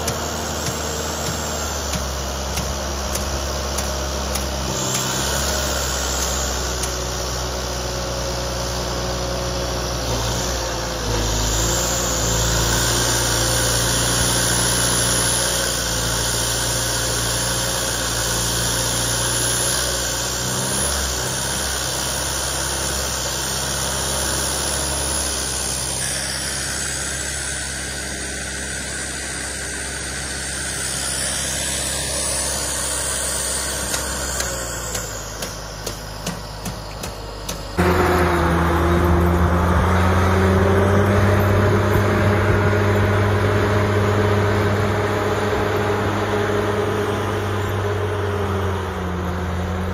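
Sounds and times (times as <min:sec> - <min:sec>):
diesel engine running: 0:00.0 - 0:49.9.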